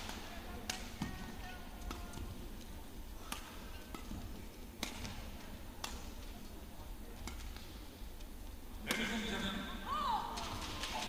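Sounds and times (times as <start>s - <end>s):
rackets striking shuttlecock: 0.0s - 6.4s, 7.1s - 9.1s
low arena hum: 0.0s - 11.0s.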